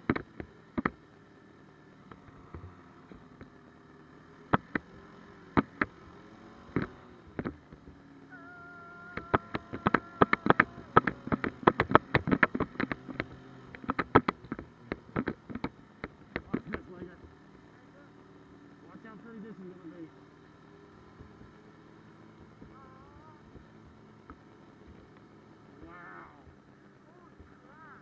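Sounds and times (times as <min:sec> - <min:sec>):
snowmobile engine running: 0:00.0 - 0:28.0
sharp clattering knocks: 0:09.1 - 0:17.4.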